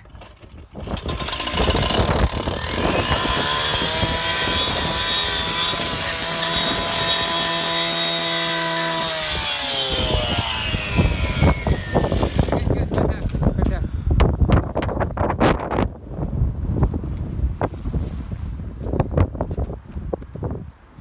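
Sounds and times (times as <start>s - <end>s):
saw disc cutting roof: 0.0s - 13.4s
petrol cut-off saw engine whine: 0.1s - 12.7s.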